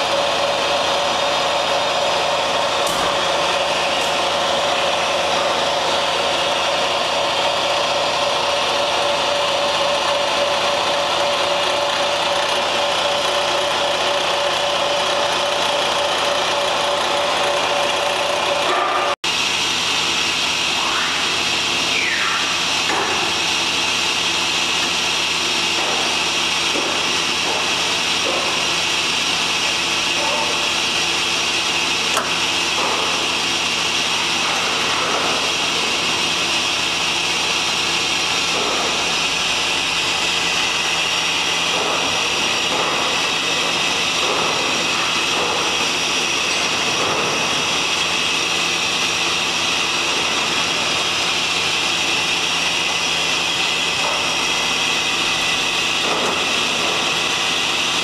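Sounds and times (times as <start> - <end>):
machine tool hum and motor whine: 0.0 - 58.0
rising and falling slide whines: 20.5 - 22.9.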